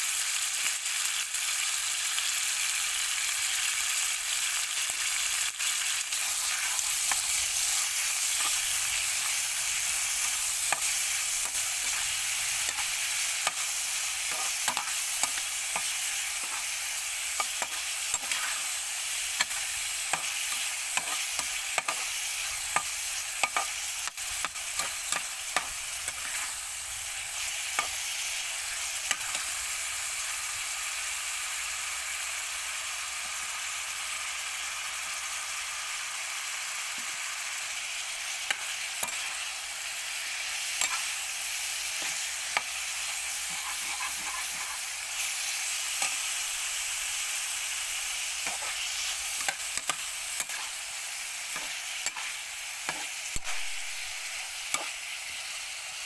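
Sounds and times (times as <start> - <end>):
food sizzling in oil: 0.0 - 56.0
metal spatula scraping pan: 17.4 - 18.7, 42.0 - 45.3, 48.4 - 50.8.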